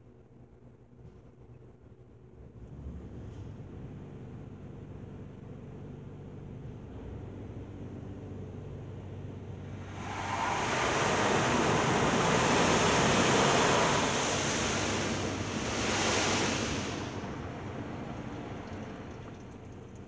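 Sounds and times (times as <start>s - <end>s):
water jets spraying on car: 9.6s - 20.0s.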